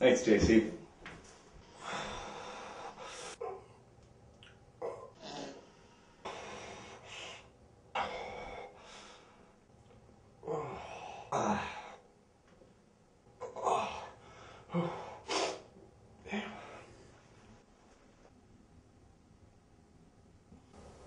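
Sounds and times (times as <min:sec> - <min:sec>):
person breathing noisily: 0:01.6 - 0:03.6.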